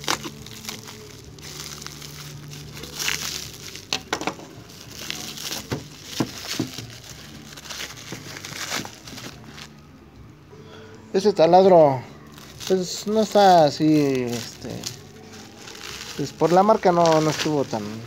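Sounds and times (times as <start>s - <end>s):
plastic wrap crinkling and tearing: 0.0s - 9.8s, 12.2s - 18.0s.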